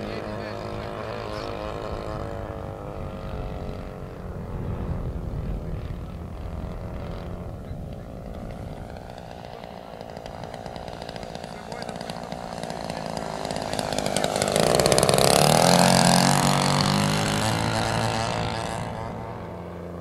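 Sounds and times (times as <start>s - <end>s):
light aircraft engine: 0.0s - 20.0s.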